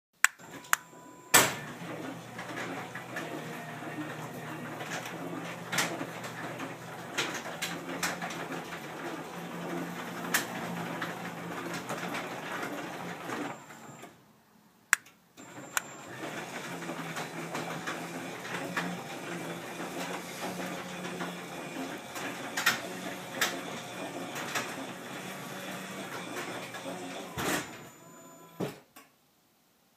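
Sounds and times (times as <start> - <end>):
garage door opener motor humming: 0.4 - 14.2, 15.4 - 28.7
sharp click: 15.0 - 15.2.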